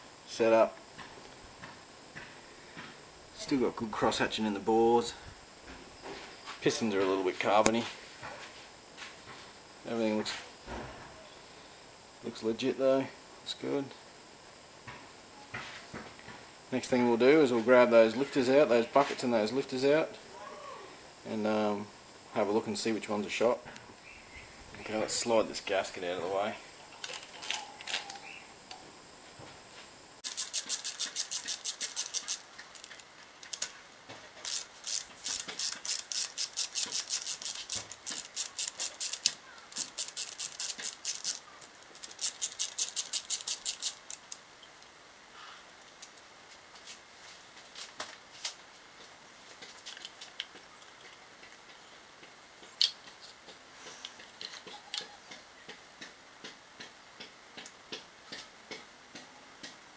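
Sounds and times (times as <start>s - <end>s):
hand ratchet clicking: 30.2s - 33.8s, 34.4s - 44.4s.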